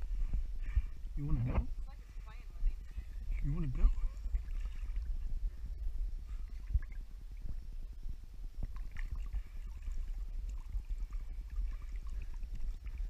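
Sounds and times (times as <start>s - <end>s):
steady low rumble: 0.0s - 13.0s
pool water lapping and sloshing: 2.0s - 7.8s, 8.5s - 13.0s.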